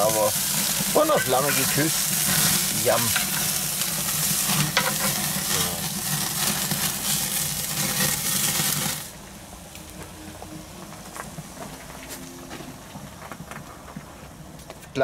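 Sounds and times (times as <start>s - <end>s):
steaks sizzling on grill: 0.0s - 9.9s.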